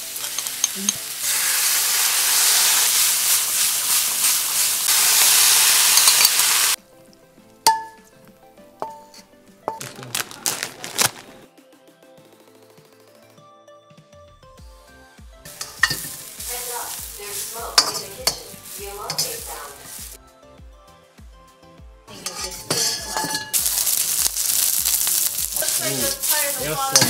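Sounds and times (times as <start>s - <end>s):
metal spatula scraping wok: 0.0s - 6.5s, 15.5s - 20.1s, 22.1s - 27.0s
food sizzling in a wok: 0.0s - 6.8s, 15.5s - 20.2s, 22.1s - 27.0s
background music with steady beat: 6.7s - 27.0s.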